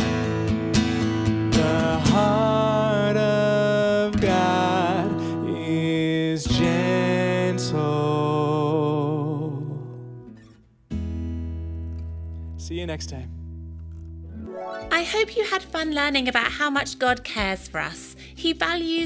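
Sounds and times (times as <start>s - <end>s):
acoustic guitar strumming: 0.0s - 12.6s, 13.3s - 16.9s
man singing worship song: 1.5s - 10.0s.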